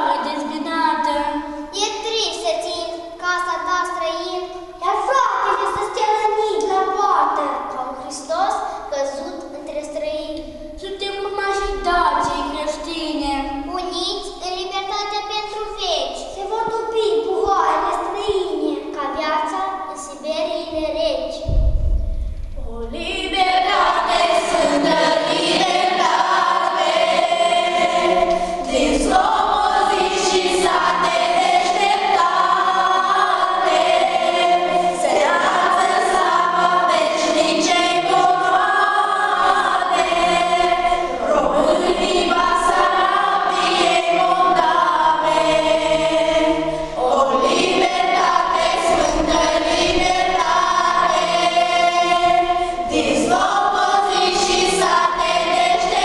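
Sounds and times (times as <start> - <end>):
children's choir singing: 0.0 - 1.7, 22.7 - 56.0.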